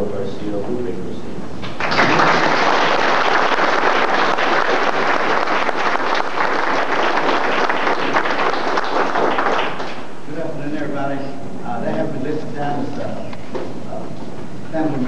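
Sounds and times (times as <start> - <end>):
audience applause: 1.8 - 10.1.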